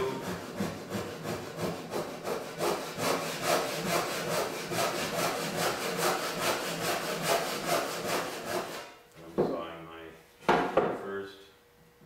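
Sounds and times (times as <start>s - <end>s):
hand saw cutting wood: 0.0s - 9.0s.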